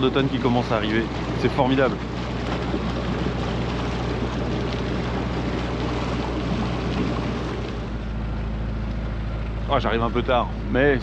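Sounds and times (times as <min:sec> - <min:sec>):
diesel engine humming: 0:00.0 - 0:11.0.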